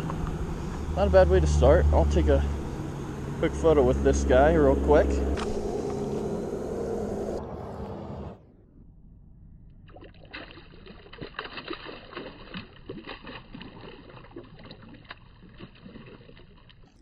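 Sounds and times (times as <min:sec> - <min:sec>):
water splashing over rocks: 0:09.9 - 0:16.9.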